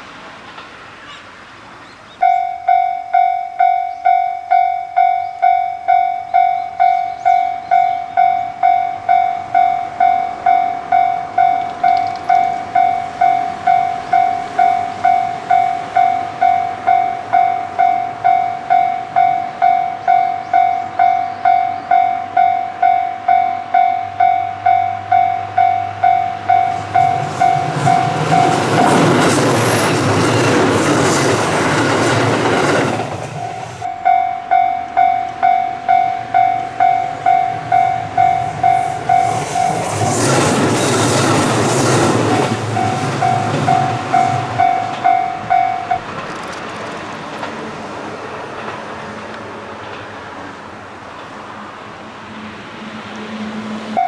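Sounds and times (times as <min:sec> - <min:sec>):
train engine and wheel noise: 0:00.0 - 0:54.0
train rushing: 0:00.0 - 0:54.0
wheels clicking over rail joints: 0:02.2 - 0:24.8, 0:25.6 - 0:47.7
level crossing warning bell: 0:02.2 - 0:29.4, 0:33.0 - 0:40.0, 0:42.1 - 0:47.1.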